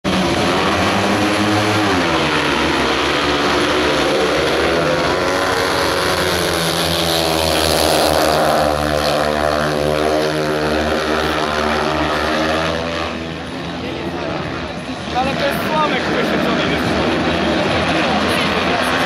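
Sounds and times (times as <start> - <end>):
racing motorcycles at full throttle: 0.0 - 19.0.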